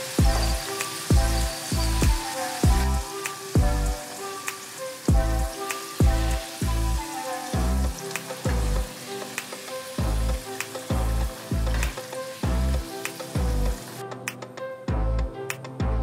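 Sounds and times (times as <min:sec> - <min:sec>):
green beans sizzling in oil: 0:00.0 - 0:14.0
background music with deep beat: 0:00.0 - 0:16.0.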